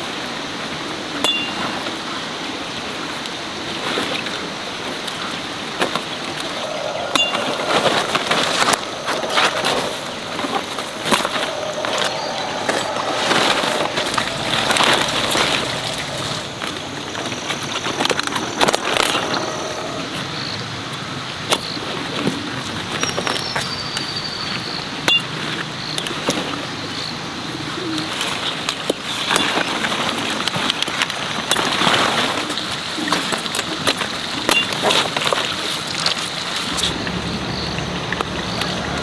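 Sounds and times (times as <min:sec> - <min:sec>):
leaves rustling: 0:03.8 - 0:20.2
bird calling: 0:06.0 - 0:20.6.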